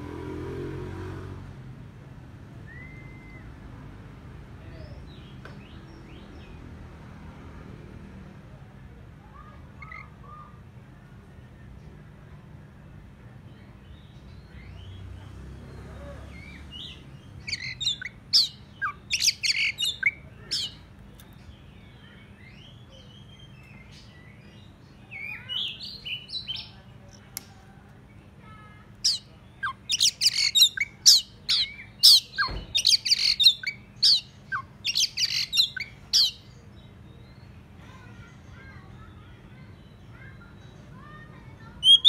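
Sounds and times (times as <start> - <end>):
bird singing whistled notes: 2.6 - 3.6, 16.4 - 20.8, 29.1 - 36.9, 41.8 - 42.0.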